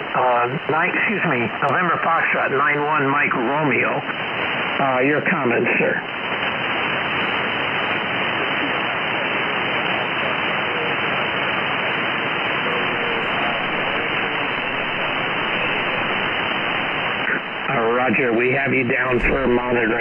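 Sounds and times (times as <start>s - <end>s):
radio hiss and static: 0.0s - 20.0s
faint voice on radio: 8.3s - 20.0s.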